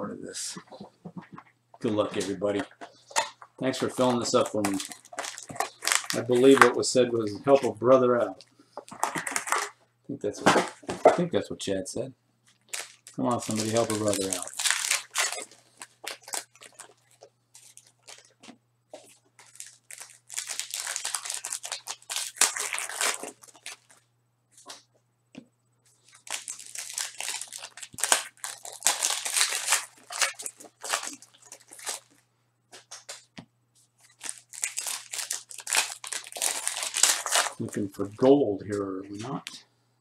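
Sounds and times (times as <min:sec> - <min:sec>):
foil wrappers ripping and crinkling: 0:03.6 - 0:06.8, 0:12.6 - 0:18.4, 0:19.0 - 0:24.0, 0:26.0 - 0:32.2, 0:34.0 - 0:38.2.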